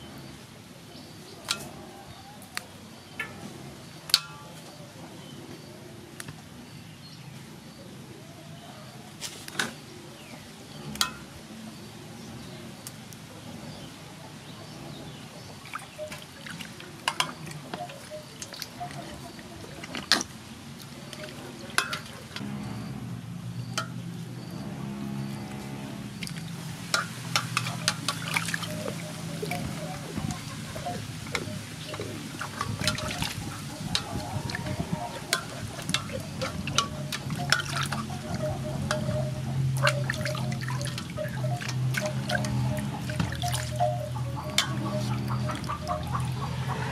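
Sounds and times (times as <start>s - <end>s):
water sloshing in a metal basin: 1.4s - 1.8s, 3.2s - 4.8s, 10.8s - 12.6s, 14.6s - 46.9s
water splashing: 15.5s - 22.4s, 26.1s - 46.9s.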